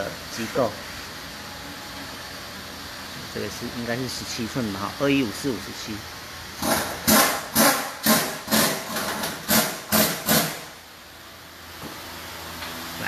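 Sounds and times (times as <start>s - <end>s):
pneumatic air tool hissing: 6.6s - 10.8s.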